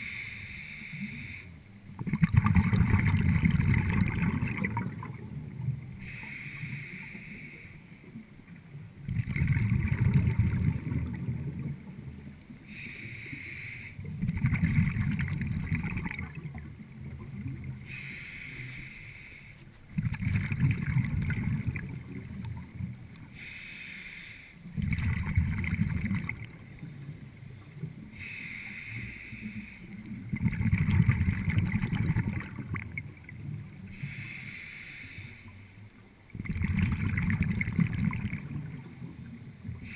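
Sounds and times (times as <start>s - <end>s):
regulator inhalation hiss: 0.0s - 1.6s, 6.0s - 8.1s, 12.6s - 14.0s, 17.8s - 19.6s, 23.3s - 24.7s, 28.1s - 30.0s, 33.9s - 35.7s
exhaled bubbles rumbling: 1.9s - 6.0s, 8.5s - 12.6s, 14.0s - 17.9s, 19.9s - 23.3s, 24.7s - 28.2s, 29.9s - 33.9s, 35.9s - 39.9s.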